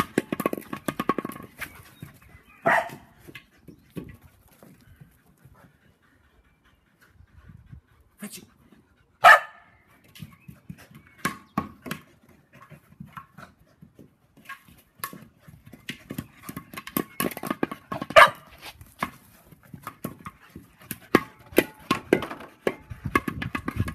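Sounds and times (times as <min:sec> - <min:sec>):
dogs panting: 0:01.3 - 0:11.2, 0:11.9 - 0:23.9
dog barking: 0:02.6 - 0:03.0, 0:09.2 - 0:09.7, 0:18.2 - 0:18.5.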